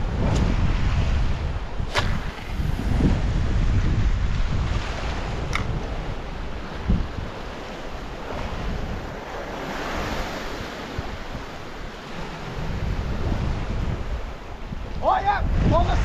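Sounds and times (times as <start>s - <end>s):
surf on rocky shore: 0.0s - 16.0s
wind rumbling on microphone: 0.0s - 16.0s
dull thump: 1.9s - 3.2s.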